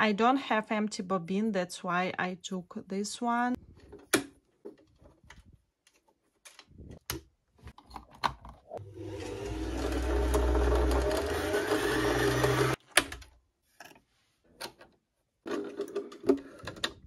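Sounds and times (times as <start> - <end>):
sewing machine motor whirring: 8.9 - 12.8.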